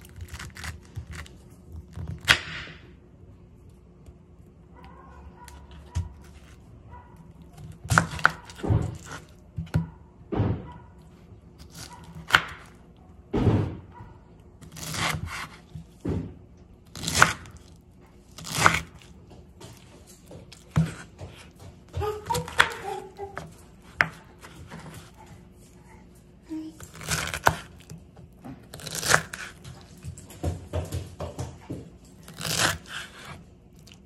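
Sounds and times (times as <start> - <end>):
knife cutting pineapple: 0.0 - 2.8, 7.5 - 9.9, 11.6 - 12.8, 14.6 - 16.0, 16.9 - 25.2, 26.7 - 29.9, 32.2 - 34.0.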